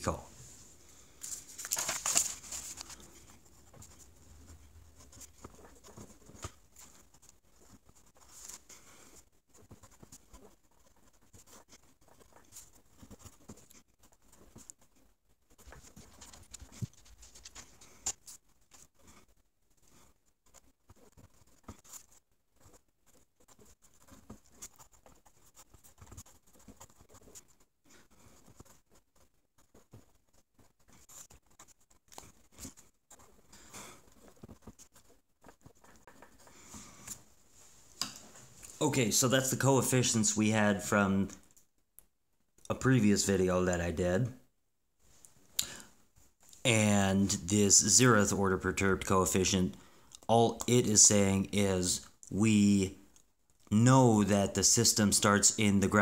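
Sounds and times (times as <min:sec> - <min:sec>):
paper rustle: 0:00.5 - 0:19.2
pencil scratching on paper: 0:02.3 - 0:37.2.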